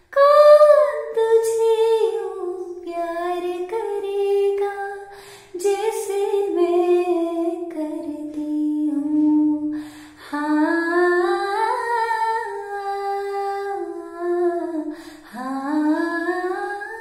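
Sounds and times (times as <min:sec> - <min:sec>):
woman singing unaccompanied: 0:00.0 - 0:17.0.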